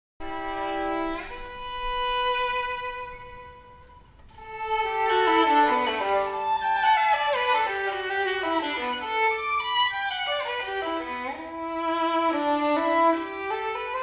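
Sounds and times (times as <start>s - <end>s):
violin playing: 0.2s - 14.0s.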